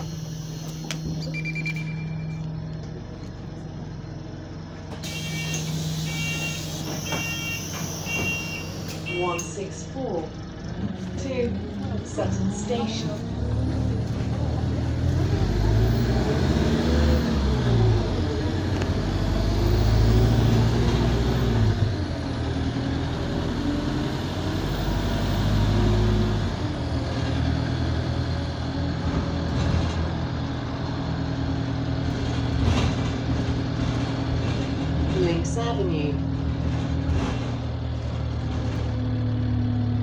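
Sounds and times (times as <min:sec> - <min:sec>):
turbo whine: 0:00.0 - 0:13.2
bus diesel engine pulling: 0:00.0 - 0:40.0.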